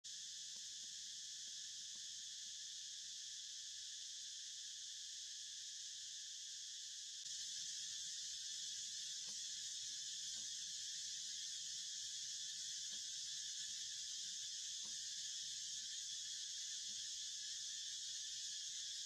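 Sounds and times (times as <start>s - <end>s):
insects chorus: 0.1s - 19.0s.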